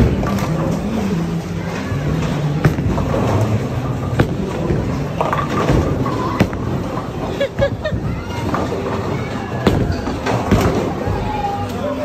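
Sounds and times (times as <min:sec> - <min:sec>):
bowling alley noise: 0:00.0 - 0:12.0
bowling ball rolling on wooden lane: 0:02.0 - 0:11.1.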